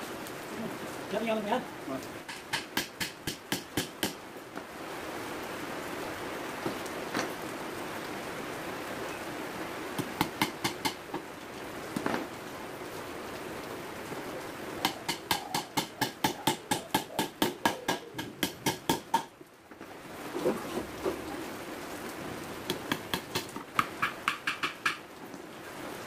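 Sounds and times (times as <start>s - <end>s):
hammer driving nails into wood: 2.3s - 4.2s, 14.8s - 19.3s, 22.7s - 25.0s.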